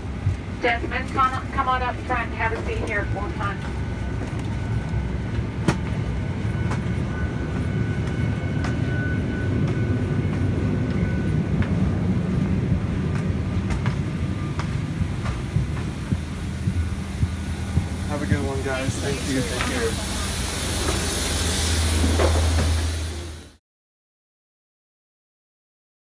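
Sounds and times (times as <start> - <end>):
airplane cabin air rumble: 0.0 - 23.6
footsteps knocking in aisle: 12.7 - 19.0.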